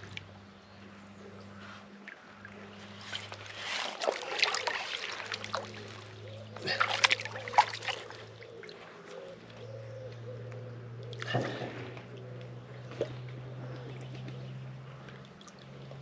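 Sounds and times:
fish splashing in water: 2.1 - 8.9.

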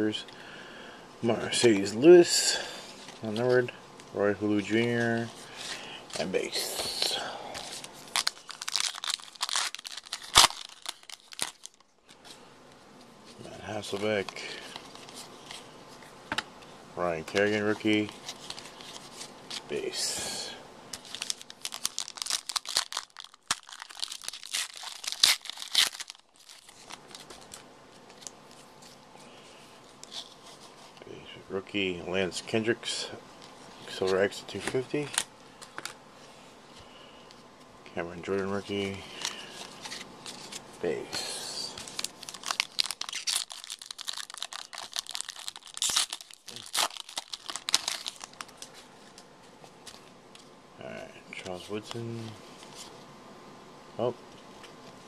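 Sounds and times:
wrapper crinkling and crackling: 4.6 - 12.3, 17.3 - 29.0, 38.6 - 50.1
cards handling: 4.6 - 12.4, 17.2 - 29.0, 33.4 - 36.0, 38.3 - 50.5.

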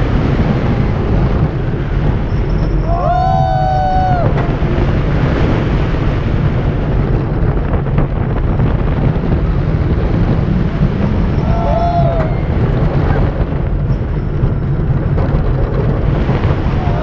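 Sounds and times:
roller coaster on track: 0.0 - 17.0
wind buffeting microphone: 0.0 - 17.0
rider screaming: 2.8 - 4.4, 11.3 - 13.2.

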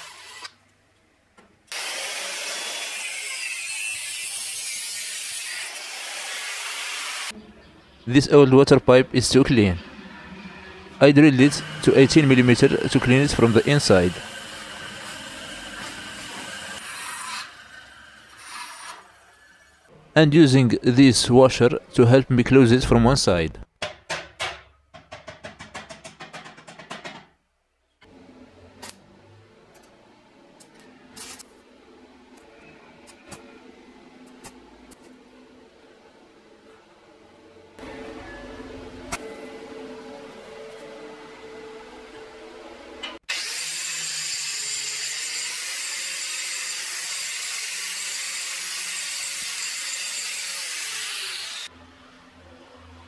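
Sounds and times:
angle grinder grinding metal pipe: 9.9 - 19.7, 43.3 - 51.7.

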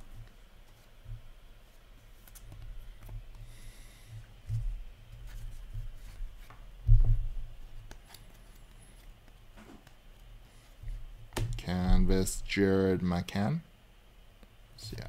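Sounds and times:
dull handling thumps: 5.7 - 7.5, 10.8 - 12.3.

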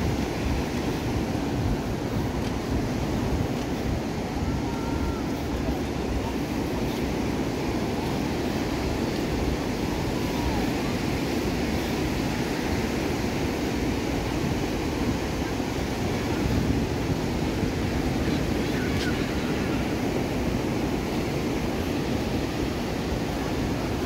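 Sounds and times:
surf breaking on beach: 0.0 - 24.0
wind buffeting microphone: 0.0 - 24.0.

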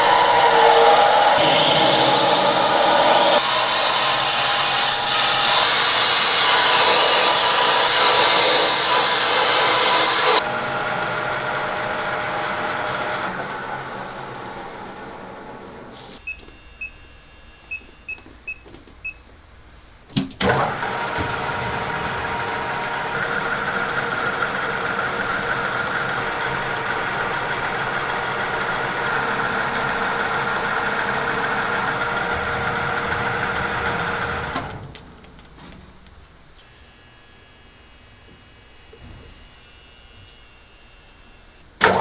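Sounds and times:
lathe cutting with whine: 0.0 - 15.7, 20.5 - 34.6.

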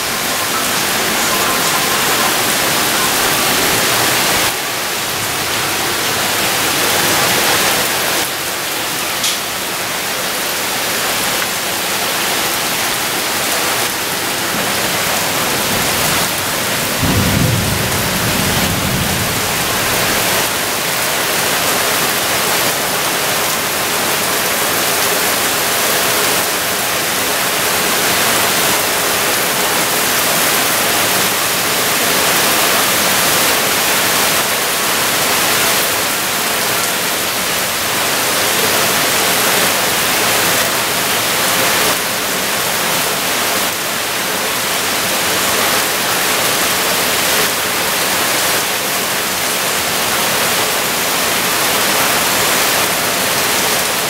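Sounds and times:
heavy rain pouring: 0.0 - 54.0
low rumble of thunder: 15.8 - 20.6.

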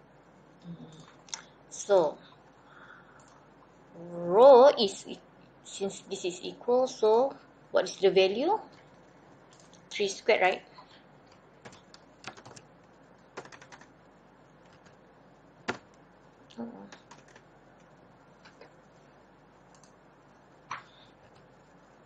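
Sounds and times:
keyboard typing: 11.3 - 12.7, 13.3 - 14.0, 14.6 - 15.0, 15.7 - 16.0, 16.8 - 17.5, 19.7 - 20.0.

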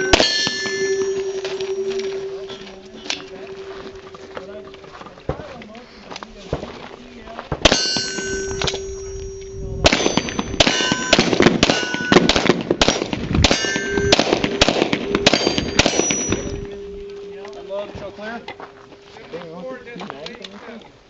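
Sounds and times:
steel plate target ringing clang: 0.0 - 5.5, 7.6 - 19.1
rapid handgun shots: 9.9 - 16.2.

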